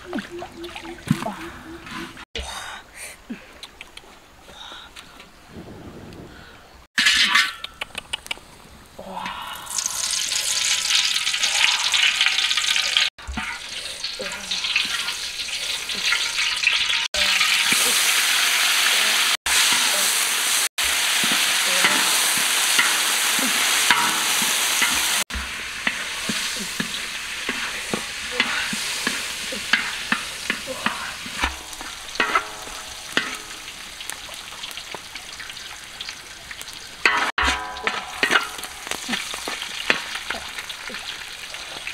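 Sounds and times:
herbs sizzling in wok: 0:09.7 - 0:41.9
metal spatula scraping wok: 0:21.1 - 0:33.6, 0:37.0 - 0:40.3.

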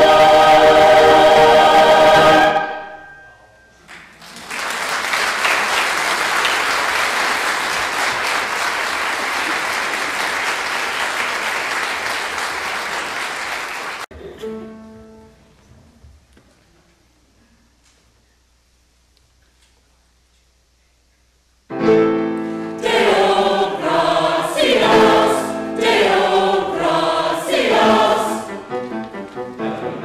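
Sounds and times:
mixed choir singing: 0:00.0 - 0:03.2, 0:22.5 - 0:30.0
audience applauding: 0:03.9 - 0:14.1.

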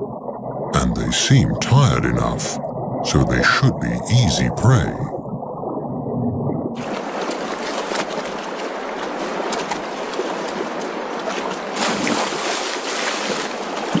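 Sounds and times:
animal splashing through water: 0:06.8 - 0:14.0
rushing stream water: 0:06.8 - 0:14.0.

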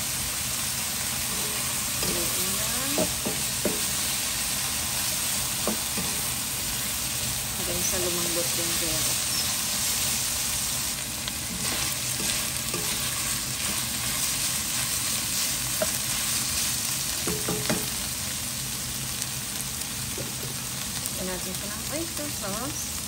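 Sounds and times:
meat and vegetables sizzling: 0:00.0 - 0:23.0
spatula stirring and scraping: 0:11.4 - 0:17.9.

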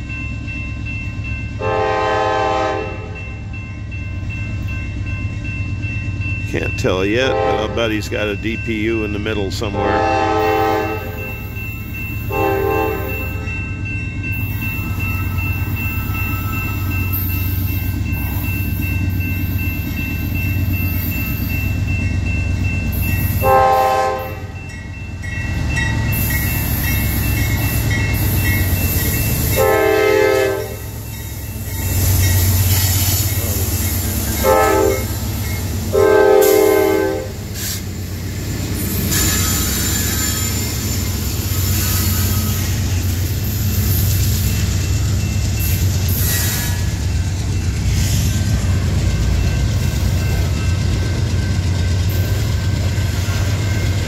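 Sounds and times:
locomotive rumble: 0:00.0 - 0:54.0
locomotive air horn: 0:01.6 - 0:03.2, 0:07.3 - 0:07.8, 0:09.7 - 0:11.3, 0:12.3 - 0:13.5, 0:23.4 - 0:24.5, 0:29.5 - 0:31.0, 0:34.4 - 0:35.2, 0:35.9 - 0:37.4.

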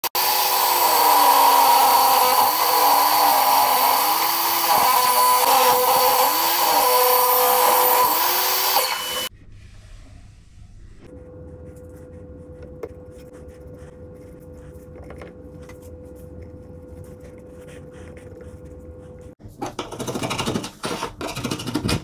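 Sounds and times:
table saw cutting wood: 0:00.0 - 0:09.3.

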